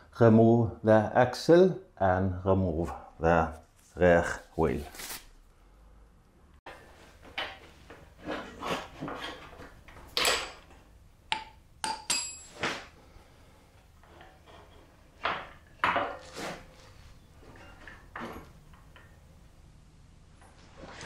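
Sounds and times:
metal clinks and knocks: 0:11.4 - 0:12.7, 0:17.4 - 0:19.2.

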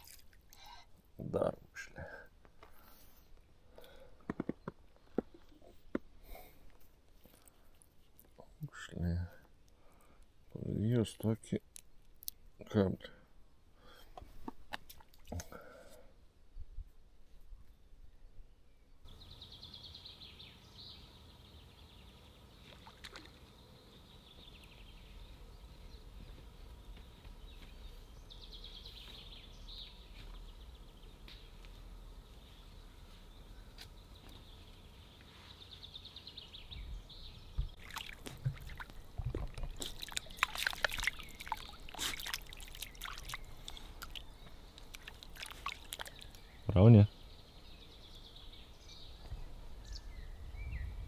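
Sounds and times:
water splashing: 0:00.0 - 0:00.5, 0:22.6 - 0:23.5, 0:37.8 - 0:46.4
faint birdsong: 0:00.0 - 0:14.3, 0:17.2 - 0:51.0.

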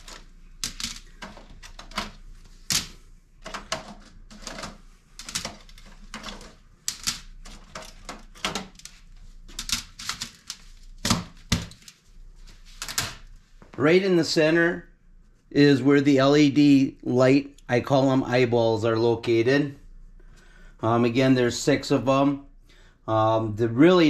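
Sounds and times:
metal filters clicking and clacking: 0:00.0 - 0:12.0.

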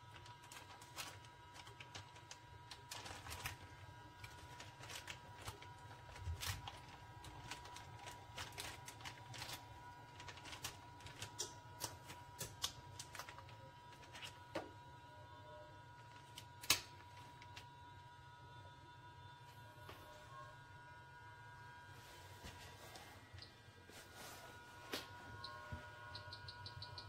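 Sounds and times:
plastic bags crinkling: 0:00.0 - 0:14.5
faint steady hum: 0:00.0 - 0:27.0.

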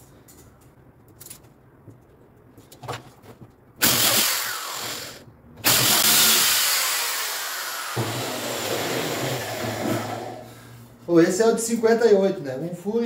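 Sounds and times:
electric drill boring wood: 0:03.8 - 0:10.4.

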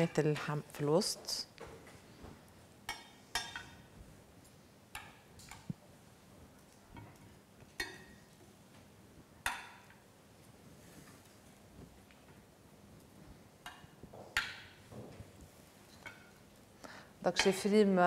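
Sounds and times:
cutlery clinking on dishes: 0:02.9 - 0:03.8.

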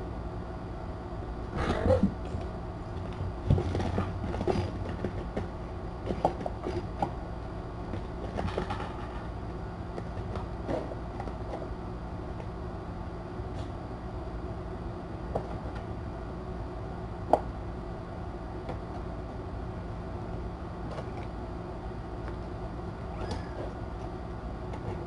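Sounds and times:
low room hum: 0:00.0 - 0:25.0
kittens tapping and knocking: 0:01.7 - 0:07.2, 0:07.9 - 0:11.7.

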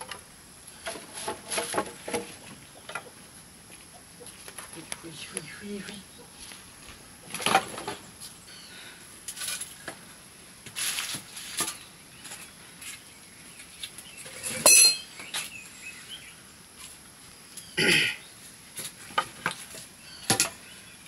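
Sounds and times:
metal pots and utensils clinking: 0:14.3 - 0:15.1
ringing metal clink: 0:14.4 - 0:15.1.

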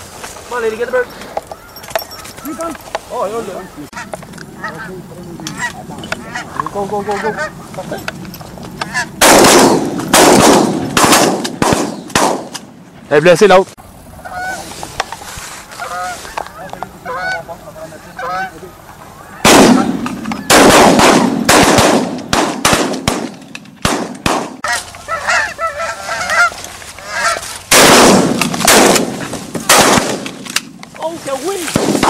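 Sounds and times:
geese honking overhead: 0:00.5 - 0:08.0, 0:08.7 - 0:09.3, 0:14.1 - 0:20.6, 0:24.6 - 0:27.8.

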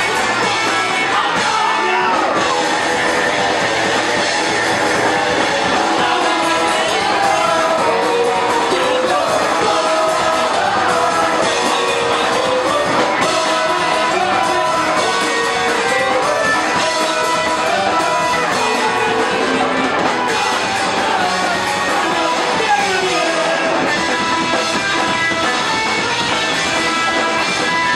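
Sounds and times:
punk rock band playing live: 0:00.0 - 0:27.9
person singing: 0:03.4 - 0:23.9.

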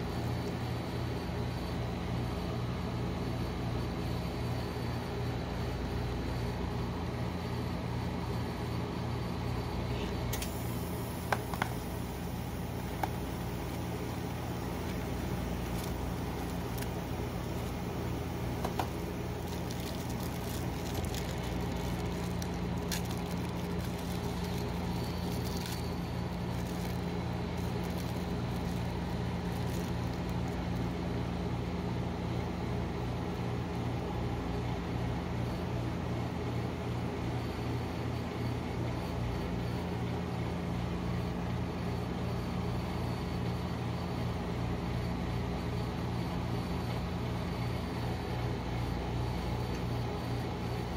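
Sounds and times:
refrigerated machine humming: 0:00.0 - 0:50.9
plastic wrapper crinkling: 0:12.8 - 0:30.8.

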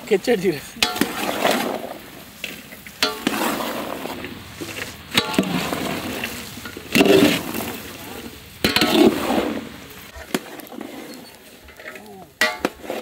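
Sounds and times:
metal ladle clinking on basin: 0:00.8 - 0:01.7, 0:11.6 - 0:12.8
wet swishing of stirred water: 0:00.8 - 0:13.0.

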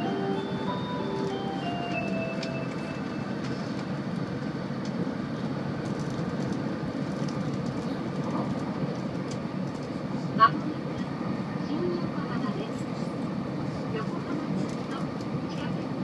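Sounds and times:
onboard chime melody: 0:00.0 - 0:03.7
train cabin rumbling rush: 0:00.0 - 0:16.0.

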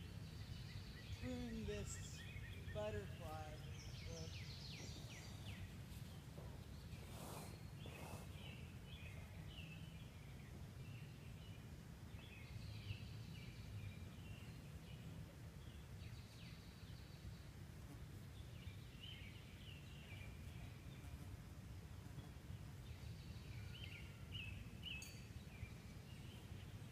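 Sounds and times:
songbirds chirping and singing: 0:00.0 - 0:17.6.

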